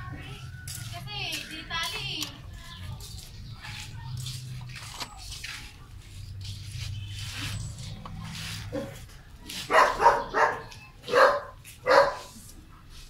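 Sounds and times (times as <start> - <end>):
dog barking: 8.7 - 12.4.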